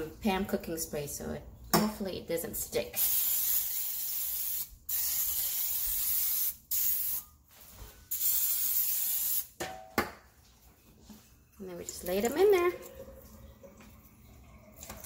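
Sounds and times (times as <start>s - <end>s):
aerosol cooking spray hissing: 3.0s - 7.2s, 8.1s - 9.5s.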